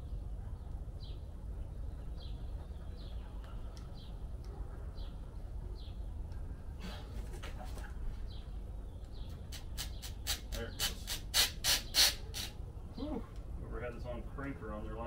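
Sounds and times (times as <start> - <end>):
oil filter squeaking as wrenched: 9.7 - 12.6.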